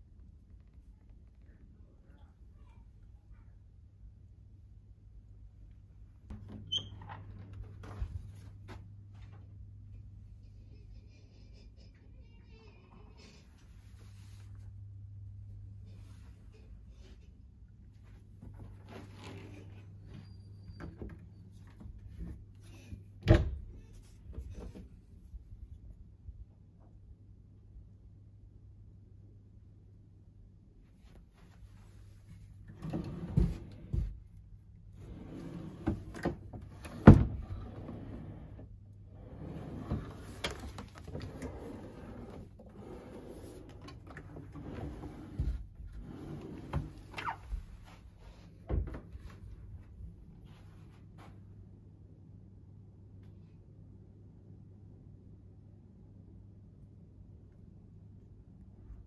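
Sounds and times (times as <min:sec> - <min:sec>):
low steady hum: 0:00.0 - 0:59.0
wooden drawers sliding: 0:32.7 - 0:34.1, 0:35.0 - 0:38.6, 0:39.2 - 0:47.2.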